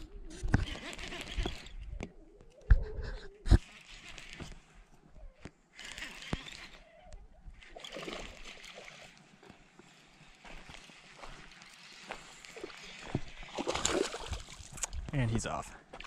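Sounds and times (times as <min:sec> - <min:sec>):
fishing reel cranking: 0:00.4 - 0:01.9, 0:03.6 - 0:04.6, 0:05.7 - 0:09.3
water splashing: 0:12.5 - 0:14.9.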